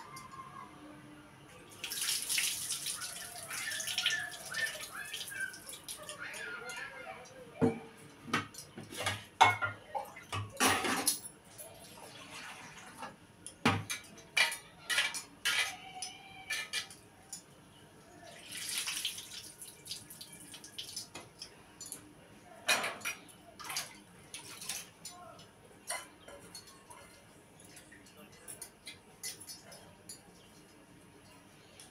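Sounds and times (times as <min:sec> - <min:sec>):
metal pots and utensils clattering: 0:07.8 - 0:11.4, 0:12.3 - 0:17.4, 0:22.6 - 0:25.1, 0:25.8 - 0:30.6.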